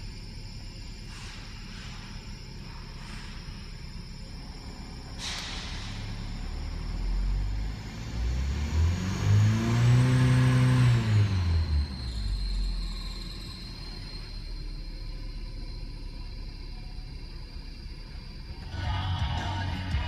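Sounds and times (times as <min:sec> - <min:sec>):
car engine idling and revving: 0:00.0 - 0:20.0.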